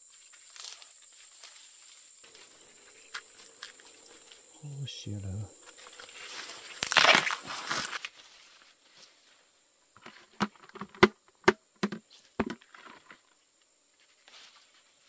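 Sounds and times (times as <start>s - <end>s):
corn leaves rustling: 0.0s - 10.6s, 14.0s - 15.0s
corn plants snapping and cracking: 6.0s - 8.2s.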